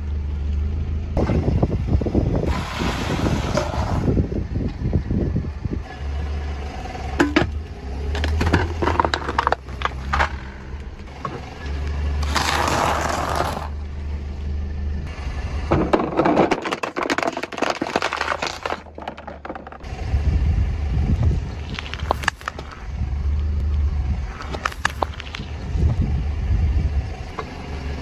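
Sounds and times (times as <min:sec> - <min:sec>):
low steady rumble: 0:00.0 - 0:28.0
tyre crunching objects: 0:07.2 - 0:10.7, 0:12.2 - 0:13.8, 0:15.8 - 0:19.9, 0:21.4 - 0:22.9, 0:24.4 - 0:25.6.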